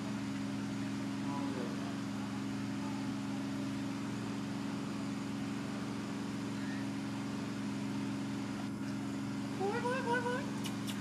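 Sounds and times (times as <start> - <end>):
faint high chirp: 6.5 - 7.0.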